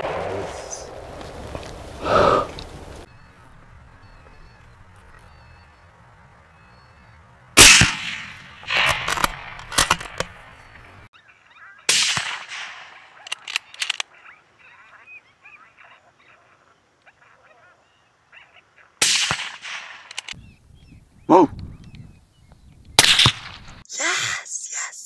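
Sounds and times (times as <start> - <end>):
rifle shots: 7.6 - 10.6, 11.9 - 14.0, 19.0 - 20.4, 23.0 - 23.6
sharp clicks: 13.2 - 14.1, 19.8 - 20.4.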